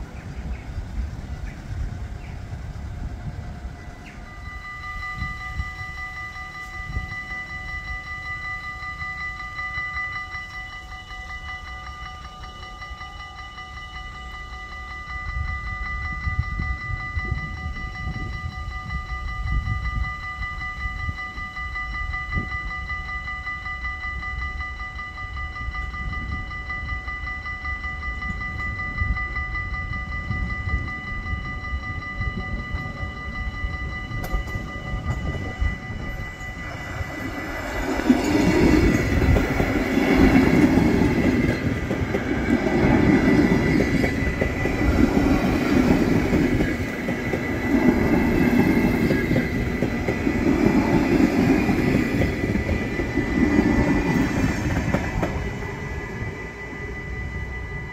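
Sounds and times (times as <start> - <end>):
whine of held tones: 0.0 - 57.9
train wheels clattering: 34.1 - 55.7.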